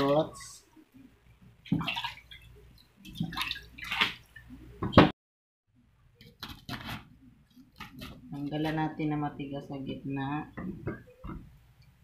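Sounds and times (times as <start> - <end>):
water splashing in a basin: 1.6 - 4.8.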